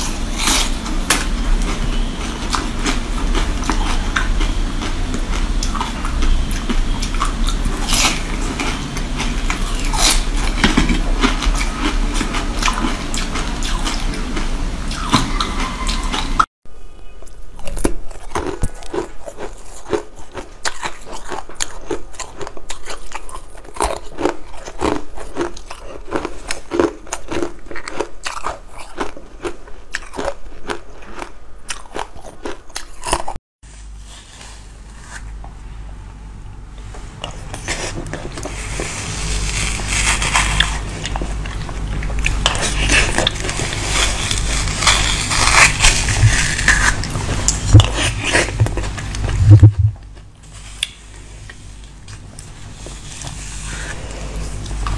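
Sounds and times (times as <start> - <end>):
crunching ice sticks: 0.0 - 14.1, 17.2 - 33.4, 37.2 - 49.6.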